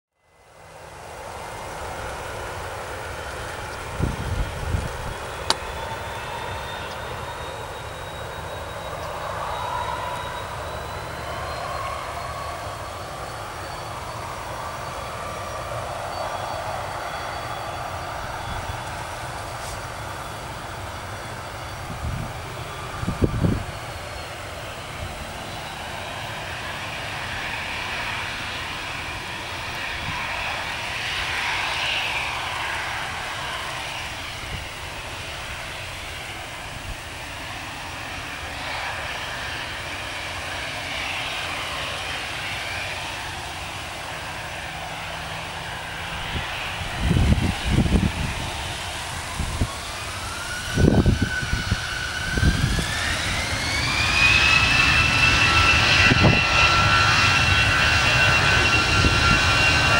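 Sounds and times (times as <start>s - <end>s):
jet engines whining: 0.3s - 59.9s
wind buffeting microphone: 1.9s - 7.1s, 17.9s - 38.1s, 44.6s - 59.9s.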